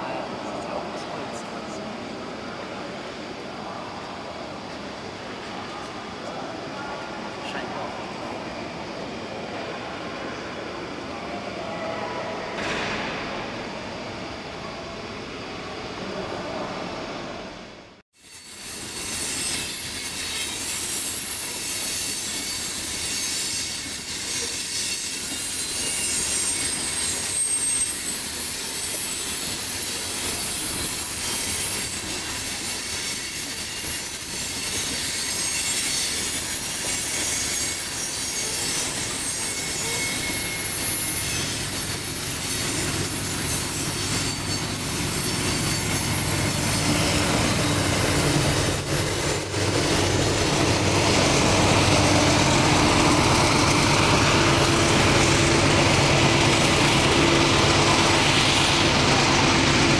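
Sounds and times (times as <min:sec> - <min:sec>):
steel wheels screeching on rails: 0:18.2 - 0:59.9
diesel locomotive rumble: 0:42.6 - 0:59.9.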